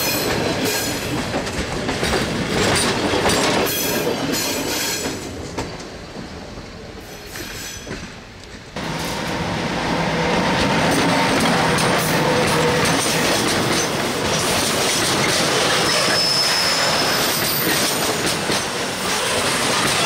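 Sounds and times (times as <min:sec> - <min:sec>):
wheels clacking over rail joint: 0:00.0 - 0:06.4, 0:10.6 - 0:20.0
train wheels rolling: 0:00.0 - 0:20.0
wheel squeal: 0:15.3 - 0:18.2.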